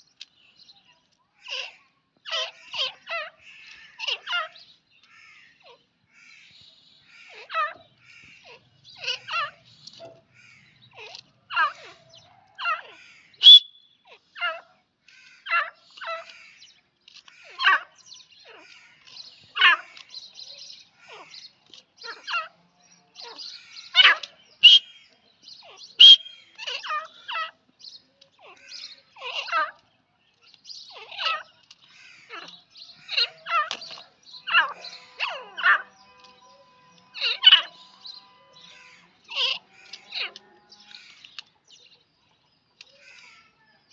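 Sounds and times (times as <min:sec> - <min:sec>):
birds giving scratchy calls: 0:01.4 - 0:41.6, 0:42.8 - 0:43.5
high bird whistles: 0:13.4 - 0:14.1, 0:24.6 - 0:25.1, 0:25.9 - 0:26.7.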